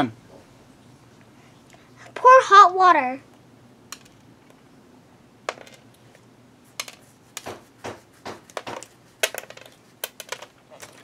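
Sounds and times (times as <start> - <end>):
small hard objects tapping: 3.9 - 4.3, 5.5 - 6.0, 6.7 - 11.0.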